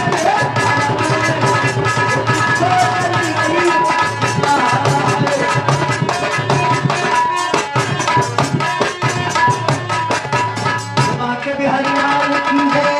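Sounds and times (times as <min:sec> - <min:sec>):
hand drums playing: 0:00.0 - 0:12.9.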